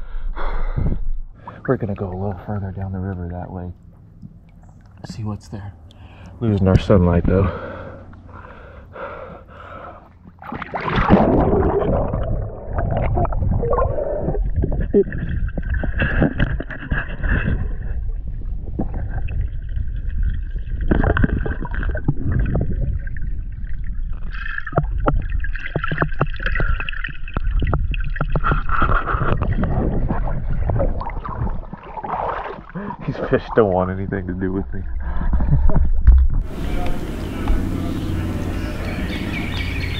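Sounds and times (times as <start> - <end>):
water bubbling: 1.4 - 5.0, 7.5 - 33.7, 36.4 - 39.9
underwater low rumble: 5.8 - 39.9
splash into water: 10.4 - 14.0, 24.3 - 33.0
water clicks on housing: 36.0 - 39.7.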